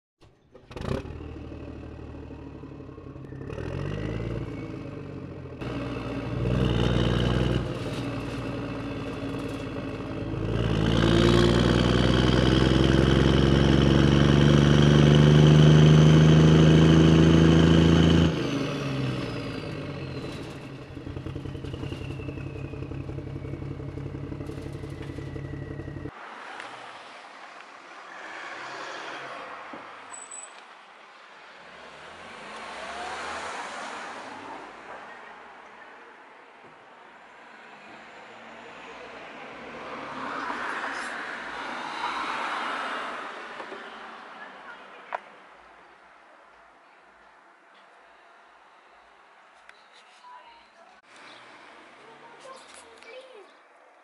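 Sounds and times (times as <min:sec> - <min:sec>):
diesel engine revving: 0:00.5 - 0:26.1.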